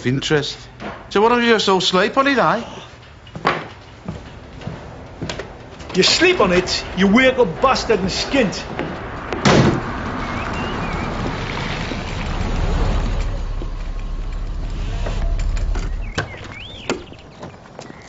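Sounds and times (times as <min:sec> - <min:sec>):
car engine running: 0:06.2 - 0:17.3.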